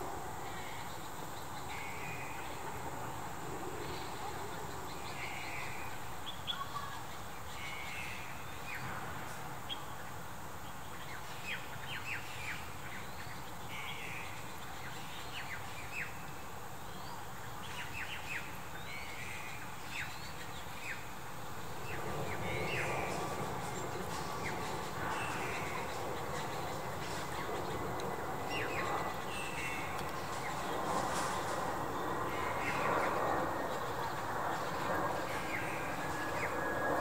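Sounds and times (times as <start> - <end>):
outdoor background noise: 0.0 - 37.0
small birds chirping: 16.9 - 37.0.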